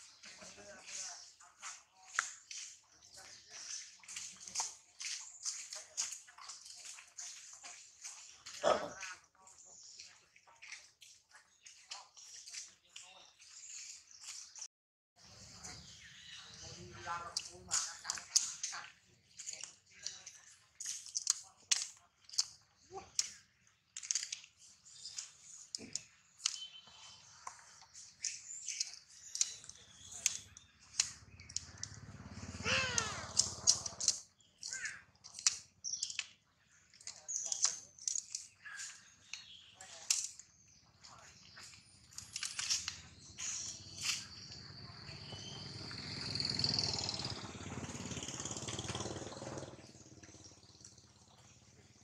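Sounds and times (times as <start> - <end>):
sharp clicks and chirps: 16.5 - 52.0
monkey wavering cry: 32.5 - 33.8.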